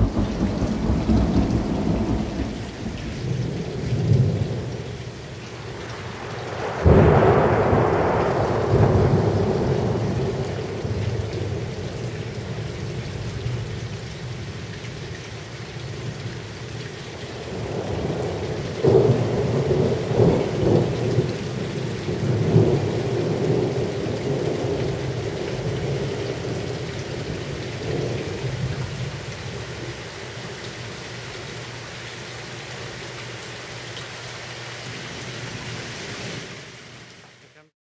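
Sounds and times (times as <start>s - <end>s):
thunder clap rolling: 0.0s - 4.6s, 5.7s - 11.9s
heavy rain: 0.0s - 37.7s.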